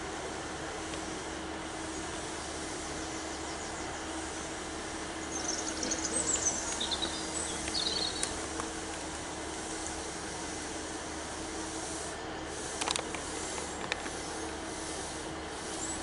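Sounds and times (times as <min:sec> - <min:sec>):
train engine idling: 0:00.0 - 0:16.0
small birds chirping: 0:01.9 - 0:09.1.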